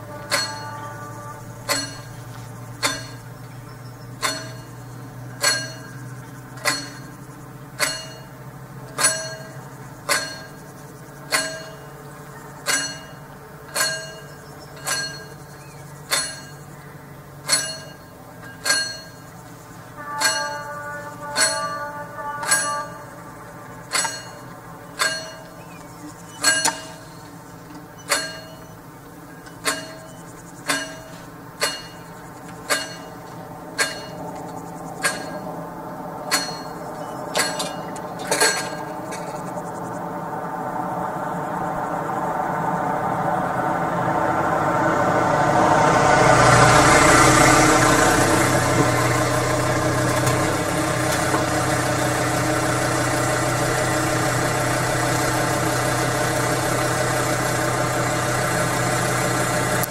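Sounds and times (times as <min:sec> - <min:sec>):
level crossing bell ringing: 0:00.0 - 0:41.8.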